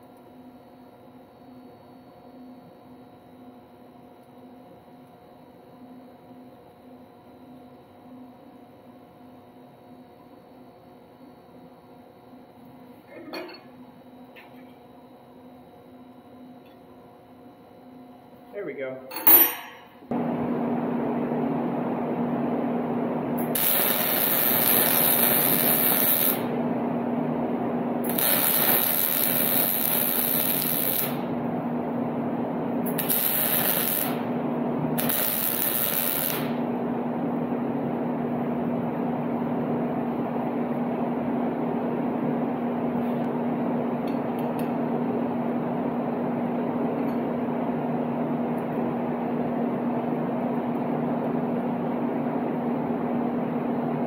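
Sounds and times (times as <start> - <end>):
steady hum: 1.1 - 54.0
welder arc crackling: 19.5 - 37.0.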